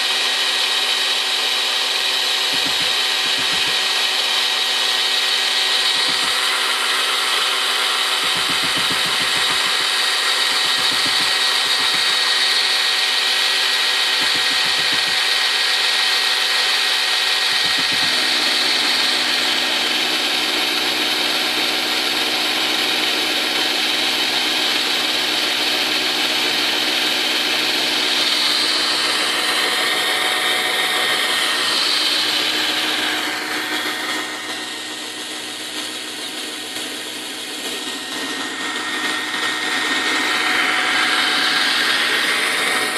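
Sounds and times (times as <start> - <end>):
cordless drill motor whine: 0.0 - 42.9.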